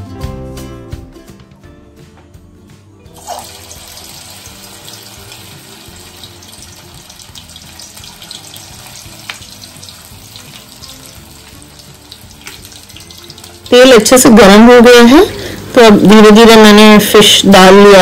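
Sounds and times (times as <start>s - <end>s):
fish deep-frying in hot oil: 3.1s - 16.8s.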